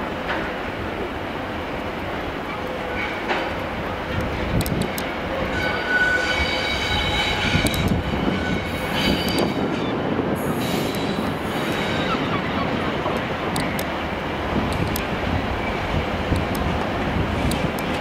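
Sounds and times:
diesel locomotive running: 0.0 - 18.0
wheel flanges squealing: 5.4 - 10.0, 10.6 - 12.8.

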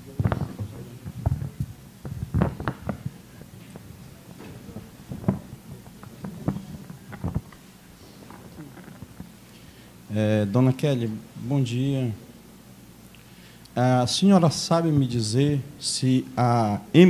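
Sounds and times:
microphone handling thumps: 0.0 - 9.4.

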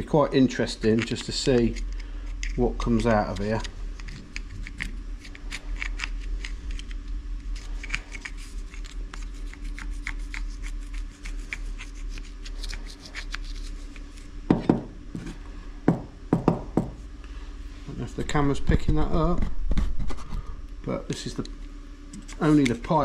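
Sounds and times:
pipe knocking on bench: 15.9 - 17.0.

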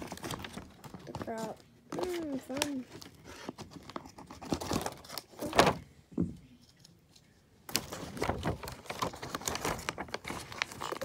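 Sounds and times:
tape peeling and crinkling: 6.8 - 11.0.

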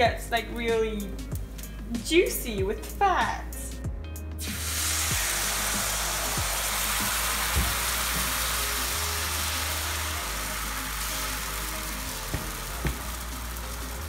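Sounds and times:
batter sizzling in frying pan: 4.4 - 14.0.

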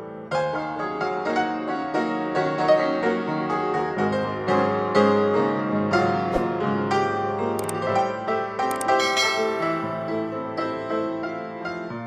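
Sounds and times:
piano music: 6.3 - 12.0.

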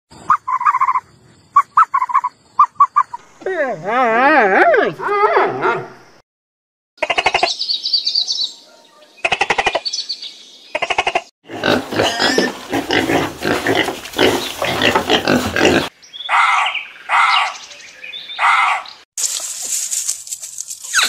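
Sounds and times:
rapidly pulsed animal calls: 0.2 - 3.2
pig grunts and squeals: 10.8 - 17.6.

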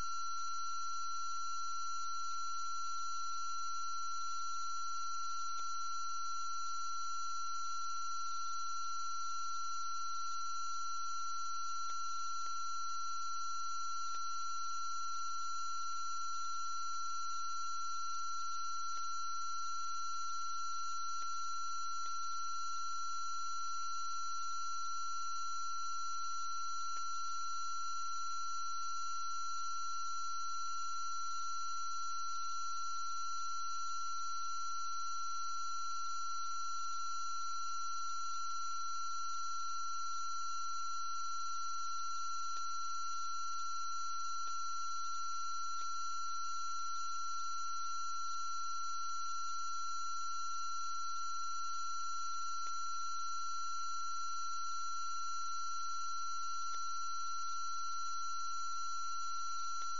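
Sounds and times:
faint ticks: 26.9 - 27.1, 56.6 - 56.9.

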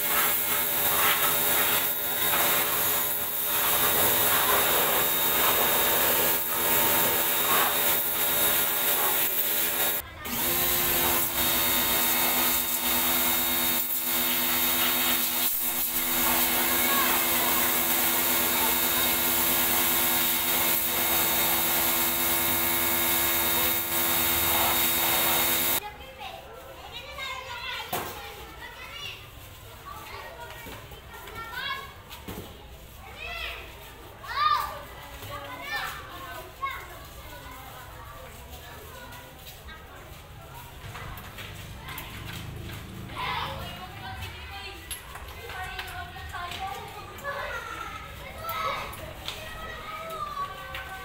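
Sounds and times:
pressure washer pump humming: 0.0 - 25.8
water jet hissing: 0.0 - 25.8.

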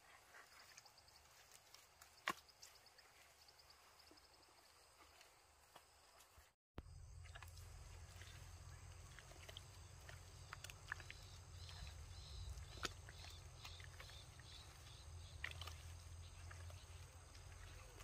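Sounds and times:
steady low rumble: 6.8 - 18.0
hands squelching in wet mud: 7.1 - 18.0.

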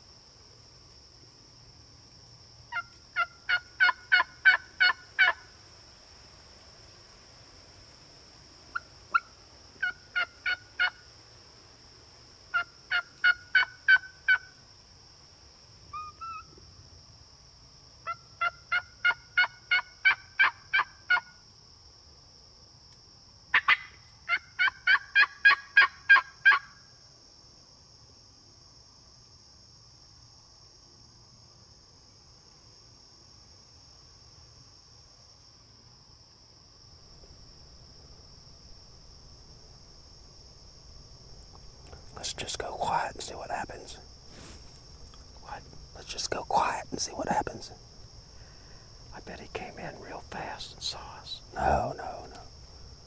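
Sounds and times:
high insect buzz: 0.0 - 53.0
turkey yelps: 2.7 - 5.4, 12.5 - 14.5, 15.9 - 16.4, 18.1 - 21.2, 23.5 - 26.7.

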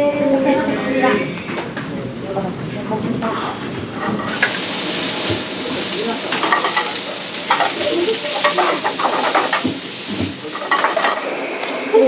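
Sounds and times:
food sizzling in a pan: 4.0 - 12.0.

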